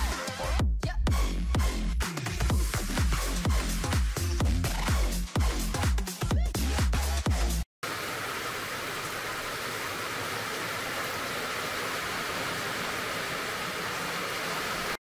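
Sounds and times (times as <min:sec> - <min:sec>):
electronic music: 0:00.0 - 0:07.6
steady rain falling: 0:07.8 - 0:15.0.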